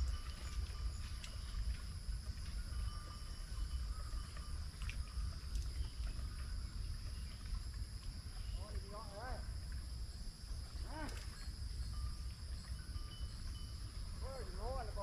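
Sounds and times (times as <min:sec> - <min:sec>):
high drone of insects: 0:00.0 - 0:15.0.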